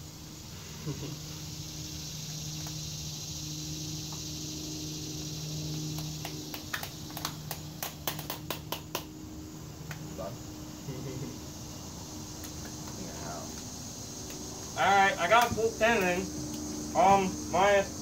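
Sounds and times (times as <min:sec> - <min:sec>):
high hiss: 0:00.0 - 0:18.0
steady low hum: 0:00.0 - 0:18.0.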